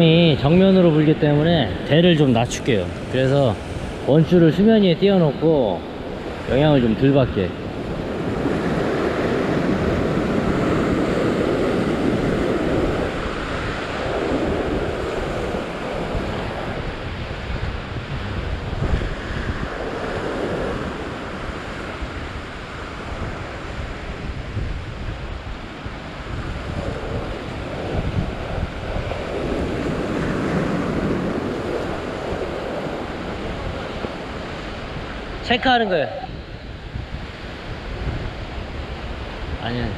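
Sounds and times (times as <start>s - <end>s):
surf breaking over rocks: 0.0s - 24.1s
wind buffeting microphone: 0.0s - 39.9s.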